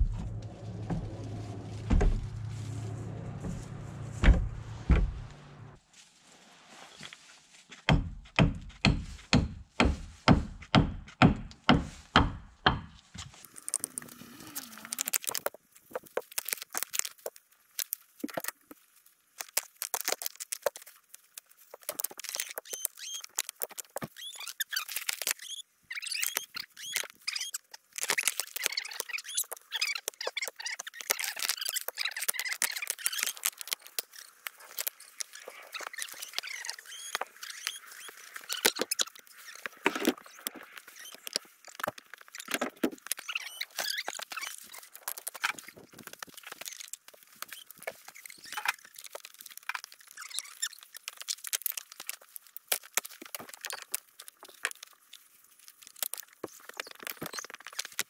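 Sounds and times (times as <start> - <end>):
hens scratching and pecking: 13.2 - 58.0
soft high squeaky calls: 22.3 - 42.5, 43.1 - 45.8, 46.4 - 49.2, 50.0 - 52.1, 56.1 - 58.0.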